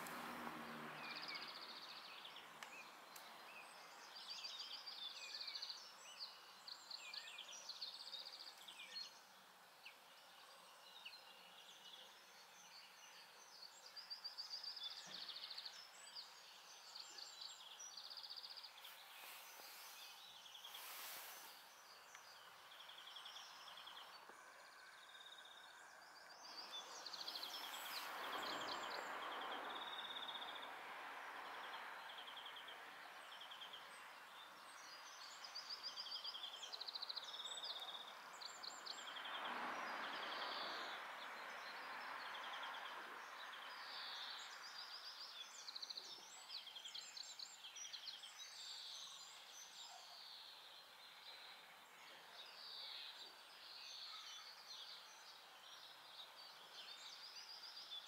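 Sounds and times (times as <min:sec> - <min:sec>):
steady outdoor hiss: 0:00.0 - 0:58.0.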